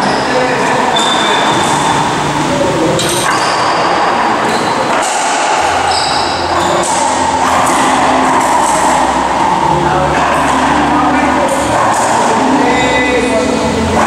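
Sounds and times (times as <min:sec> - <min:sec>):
echoing court noise: 0:00.0 - 0:14.0.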